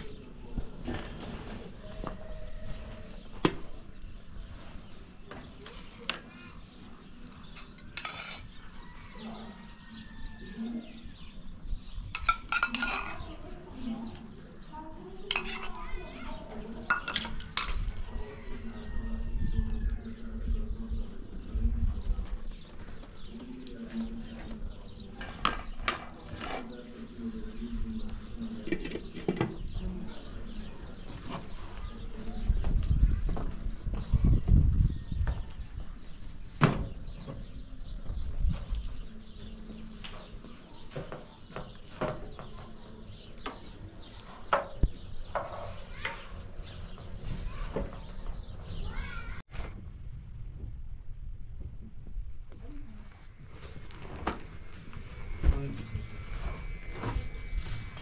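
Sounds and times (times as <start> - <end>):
metal ladle clinking and scraping pot: 7.4 - 8.6, 12.2 - 13.3, 15.3 - 15.8, 16.8 - 17.8.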